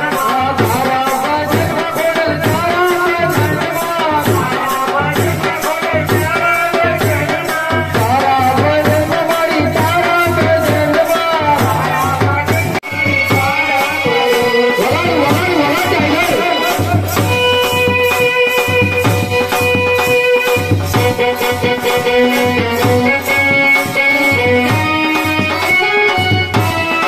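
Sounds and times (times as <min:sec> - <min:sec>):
person singing through a microphone: 0:00.0 - 0:27.0
steady beat: 0:08.0 - 0:27.0.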